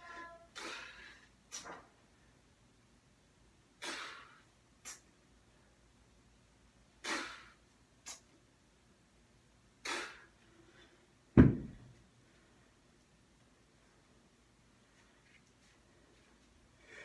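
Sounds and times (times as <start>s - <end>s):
kettlebell thud on floor: 11.4s - 11.9s.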